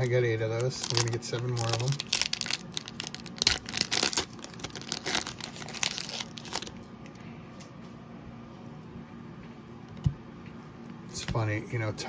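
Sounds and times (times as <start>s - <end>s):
foil wrapper crackling: 0.0s - 6.9s.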